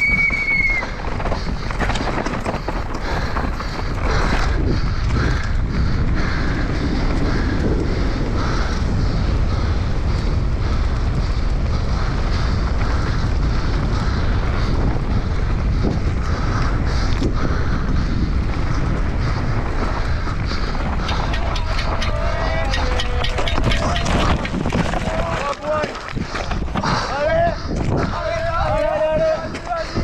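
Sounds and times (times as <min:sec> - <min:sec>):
bike knocking over rough ground: 0:00.0 - 0:05.3, 0:19.6 - 0:29.8
rumble of bike tyres: 0:00.0 - 0:30.0
wind buffeting microphone: 0:00.0 - 0:30.0.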